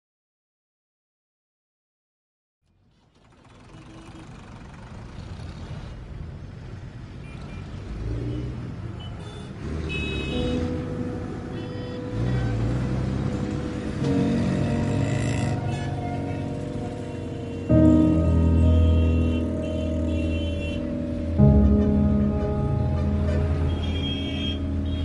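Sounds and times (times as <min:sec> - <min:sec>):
sustained tones: 0:10.4 - 0:25.0.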